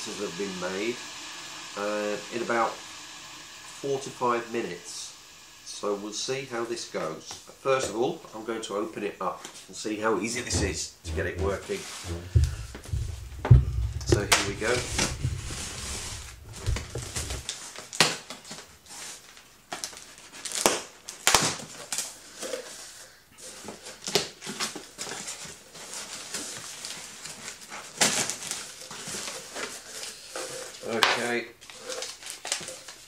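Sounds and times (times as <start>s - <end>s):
packing tape ripping: 16.6s - 22.7s, 23.9s - 33.0s.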